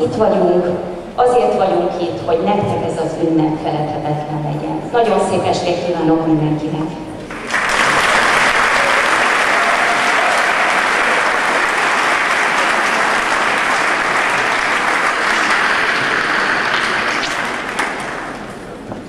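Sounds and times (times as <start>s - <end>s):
audience applauding: 7.3s - 18.8s.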